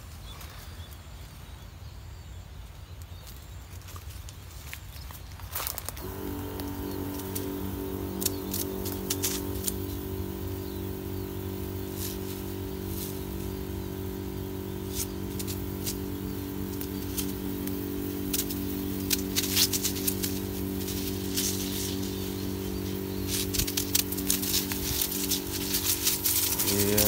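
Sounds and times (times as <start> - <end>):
light clicks and rustles of leaves: 2.6 - 9.9
sprayer pump motor running: 6.0 - 27.0.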